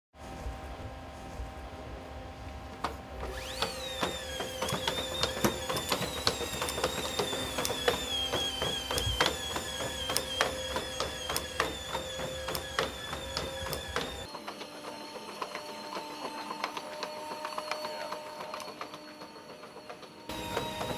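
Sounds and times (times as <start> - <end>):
robot motor whine: 0.3 - 20.9
robot feet clicking and tapping: 3.5 - 14.7.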